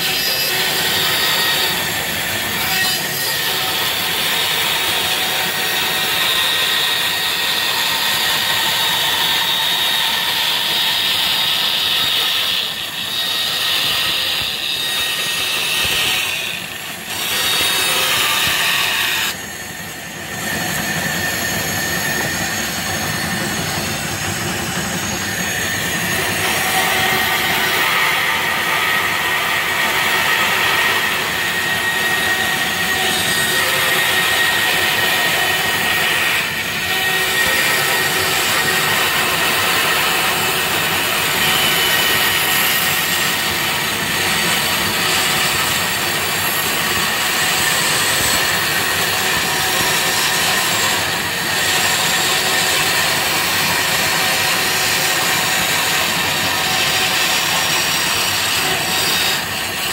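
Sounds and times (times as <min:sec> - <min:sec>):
bandsaw cutting plywood: 0:00.0 - 0:19.4, 0:20.0 - 0:59.9.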